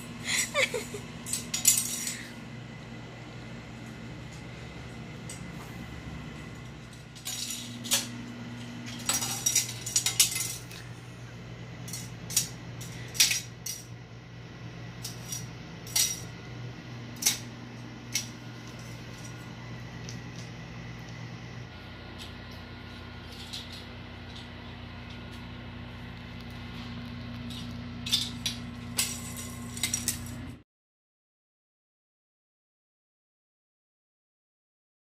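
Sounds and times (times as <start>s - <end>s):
plastic spoon clattering on tiled floor: 1.2s - 2.3s, 8.9s - 10.8s, 11.8s - 14.0s, 27.4s - 30.4s.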